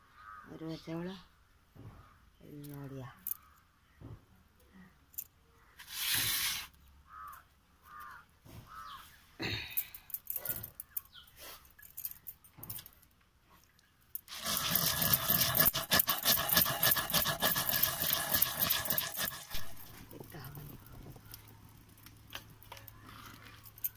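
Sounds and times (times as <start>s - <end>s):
rice scraped into clay pot: 5.8s - 6.8s, 14.3s - 20.3s
pestle grinding rice in pot: 14.3s - 21.3s.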